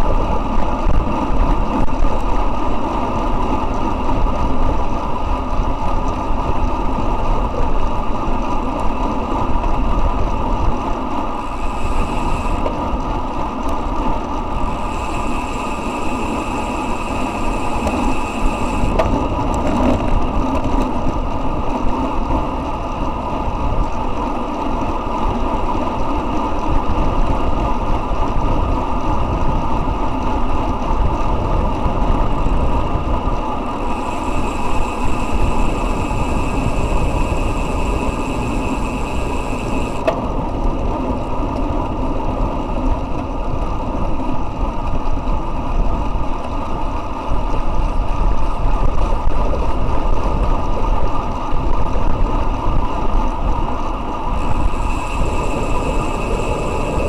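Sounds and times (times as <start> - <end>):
tyre noise on asphalt: 0.0 - 57.0
wind rushing on microphone: 0.0 - 57.0
faint high whine: 11.2 - 13.0, 14.4 - 19.3, 33.5 - 40.1, 54.2 - 57.0.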